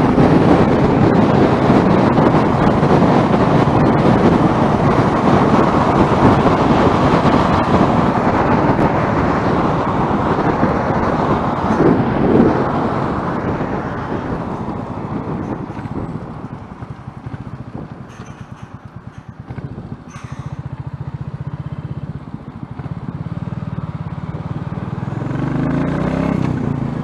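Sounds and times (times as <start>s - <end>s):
motorcycle engine: 0.0s - 27.0s
wind rush on microphone: 0.0s - 27.0s.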